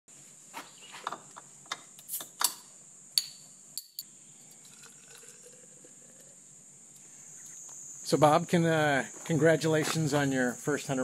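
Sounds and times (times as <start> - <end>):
glass bottle and tumbler clinking: 4.6 - 5.7
beer pouring into tumbler: 4.6 - 6.5.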